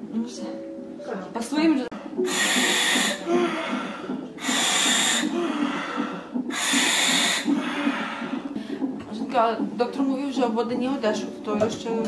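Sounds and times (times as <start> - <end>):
valve hiss: 2.2 - 3.2, 6.5 - 7.5.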